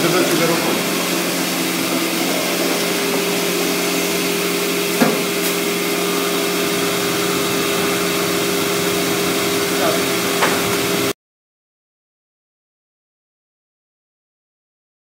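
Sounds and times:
printer mechanical hum: 0:00.0 - 0:11.1.

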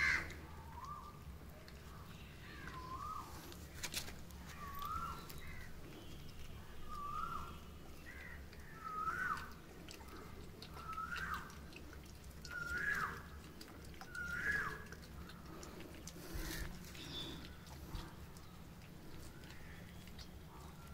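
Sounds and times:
puppy whining: 0:08.6 - 0:18.2.

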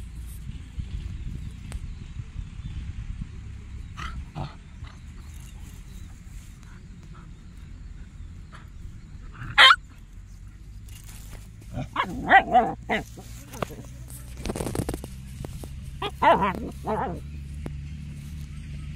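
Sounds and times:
dog yelping: 0:09.4 - 0:09.8, 0:11.7 - 0:13.9, 0:16.0 - 0:17.3
dogs play-fighting: 0:10.9 - 0:14.8, 0:15.4 - 0:17.4.

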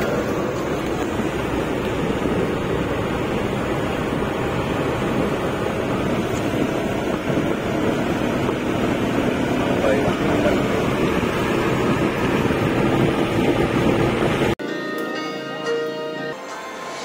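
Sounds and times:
wind and road noise in cab: 0:00.0 - 0:14.6.

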